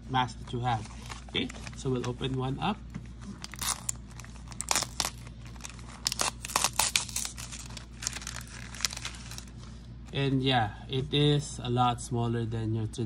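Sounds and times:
plastic wrapper crinkling: 3.2 - 10.2.

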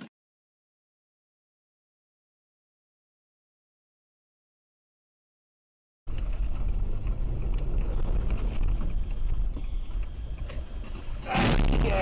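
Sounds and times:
car road noise rumble: 6.1 - 12.0.

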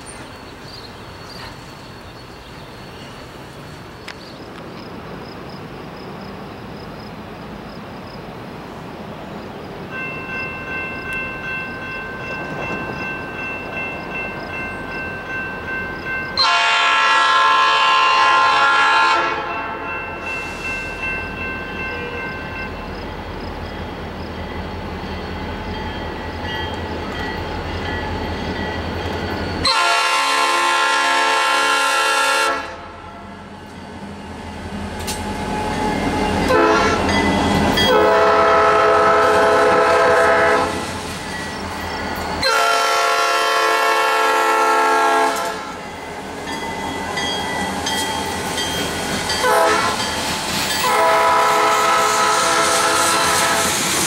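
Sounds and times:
locomotive air horn: 16.4 - 20.7, 29.6 - 33.2, 36.5 - 37.1, 37.9 - 40.8, 42.4 - 45.8, 49.4 - 50.0, 50.8 - 53.8.

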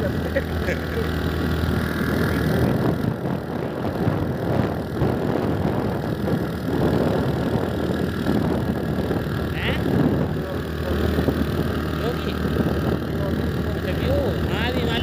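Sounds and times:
vehicle engine running: 0.0 - 15.0
wind on microphone: 0.0 - 15.0.

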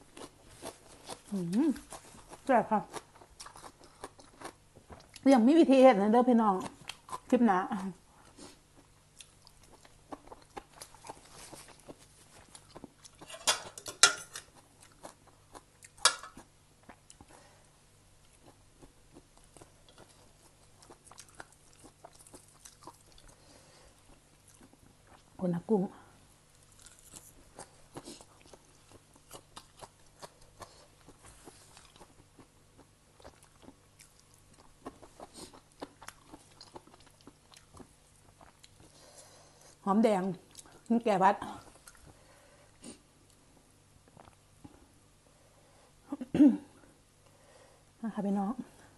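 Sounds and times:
person chewing with mouth open: 0.0 - 5.2, 6.6 - 7.3, 8.2 - 13.4, 14.3 - 17.4, 18.2 - 25.3, 26.6 - 39.8, 41.6 - 44.5.

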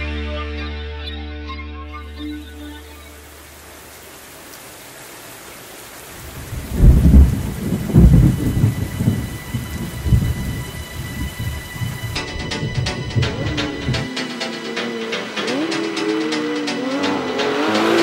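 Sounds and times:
rain hissing: 2.4 - 18.0
thunder rumbling: 6.2 - 14.2.

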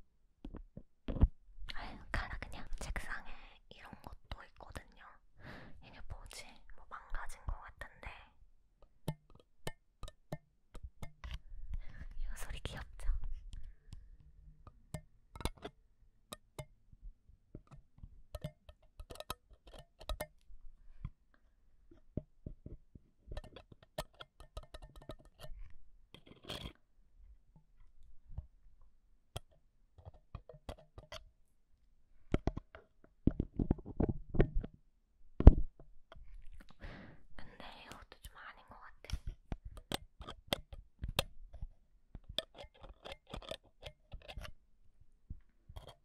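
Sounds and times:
metal pick scraping microphone grille: 23.4 - 26.8.

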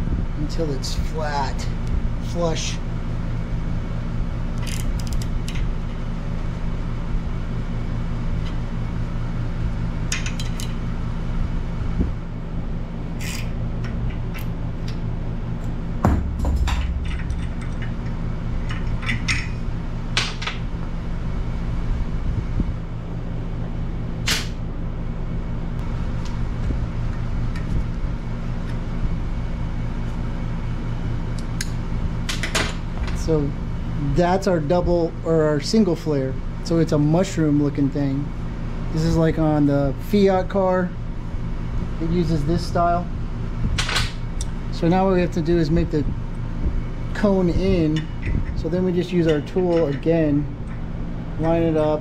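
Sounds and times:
steady low hum: 0.0 - 52.0
louder knock: 16.0 - 17.4.

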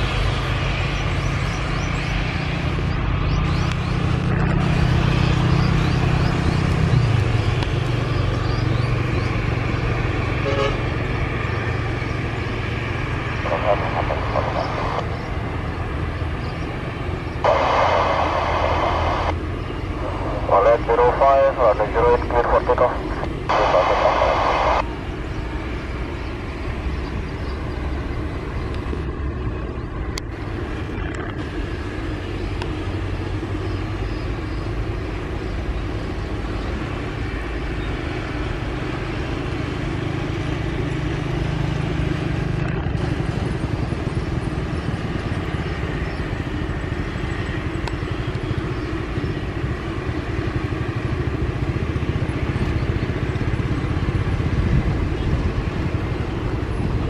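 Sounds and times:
propeller engines droning: 0.0 - 57.0.

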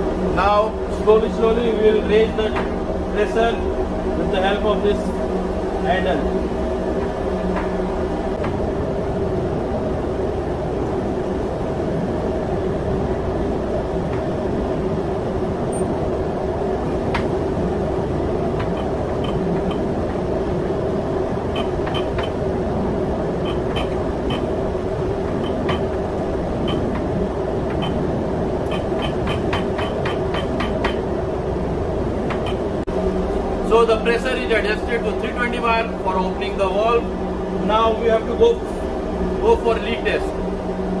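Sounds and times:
engine-room machinery drone: 0.0 - 41.0.

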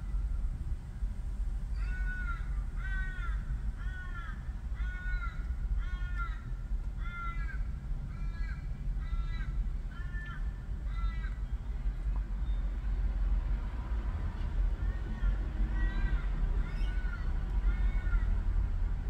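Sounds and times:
steady low rumble: 0.0 - 19.0
crow cawing: 1.8 - 11.5, 14.8 - 18.4.

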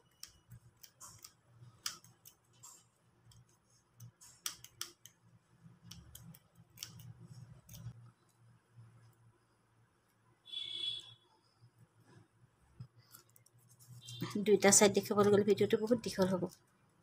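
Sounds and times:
scissors snipping: 0.1 - 5.2, 5.8 - 8.0.

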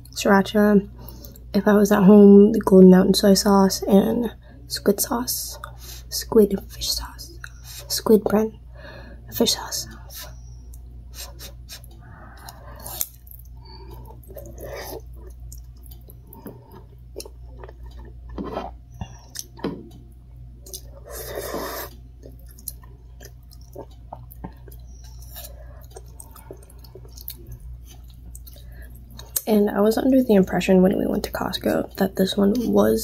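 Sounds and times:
low steady hum: 0.0 - 33.0
chewing and slurping noodles: 11.2 - 19.8, 20.6 - 29.4.

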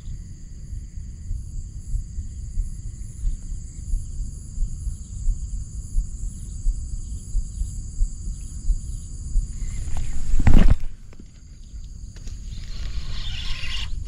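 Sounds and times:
crickets chirping: 0.0 - 14.0
soft thumps: 9.6 - 11.5.

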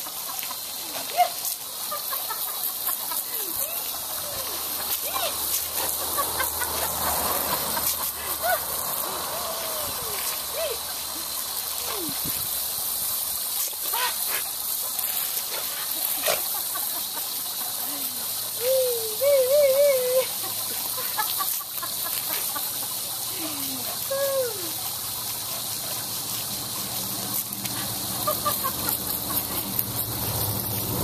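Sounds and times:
hose nozzle spraying water: 0.0 - 31.0
wavering vocal sounds: 8.1 - 12.3, 17.9 - 20.4, 23.3 - 24.8.

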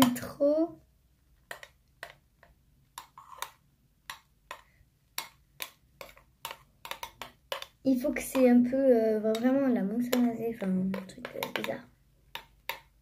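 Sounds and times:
utensil tapping against bowl: 3.0 - 8.7, 9.3 - 13.0.

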